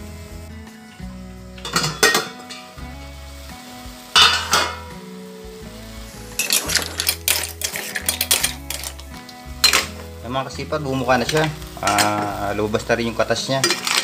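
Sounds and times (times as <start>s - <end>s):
pot lid clattering: 1.6s - 2.7s, 4.2s - 4.9s, 6.4s - 9.0s, 9.6s - 10.0s, 11.3s - 12.3s, 13.6s - 14.0s
ladle stirring shells in pot: 6.4s - 10.0s, 13.5s - 14.0s.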